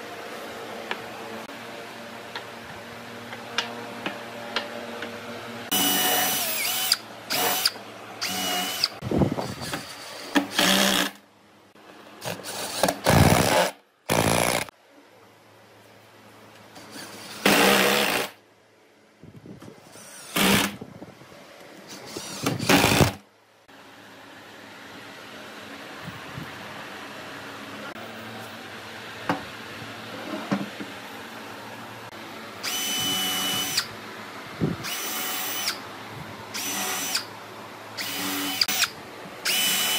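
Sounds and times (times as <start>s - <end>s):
cordless drill driving screws: 5.7s - 9.0s, 9.6s - 11.2s, 21.9s - 23.2s, 34.8s - 35.8s, 36.6s - 37.3s, 38.0s - 39.9s
drill motor whine: 5.7s - 11.1s, 32.6s - 33.9s, 34.8s - 35.8s, 36.5s - 37.3s, 38.0s - 39.9s.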